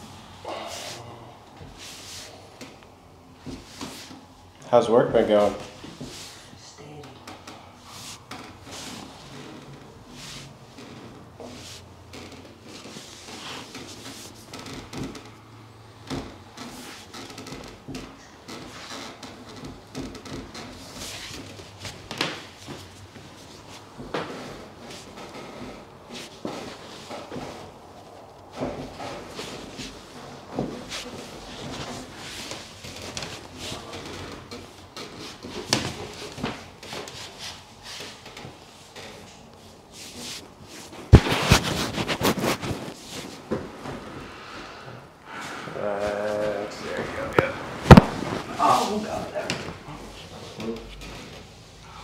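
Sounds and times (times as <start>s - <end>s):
fabric rustling: 0.6s - 2.4s, 3.4s - 4.4s, 7.8s - 14.8s, 18.6s - 44.1s, 45.9s - 50.6s
hands brushing over a shirt: 3.5s - 4.2s, 7.9s - 9.2s, 10.1s - 10.5s, 12.8s - 14.5s, 39.9s - 43.4s
brief thumps on back: 47.3s - 48.5s.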